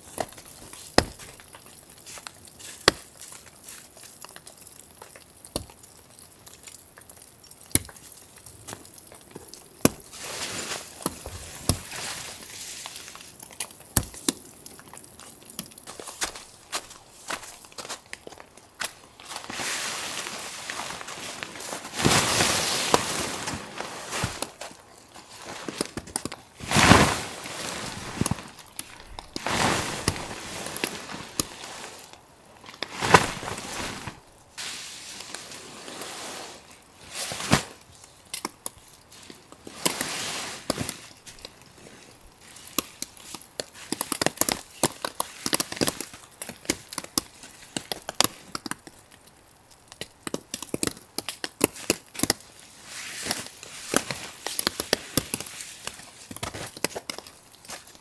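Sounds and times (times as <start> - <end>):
small clicks and crunches: 0.0 - 58.0
rustling swishes: 26.6 - 32.2, 32.8 - 37.8.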